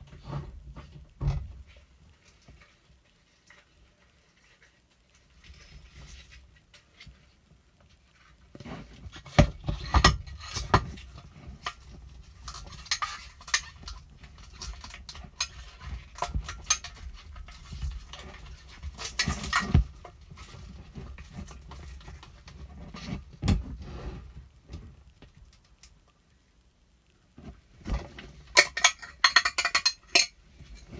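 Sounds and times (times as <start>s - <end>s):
plastic dishes clicking and tapping: 28.6s - 30.4s.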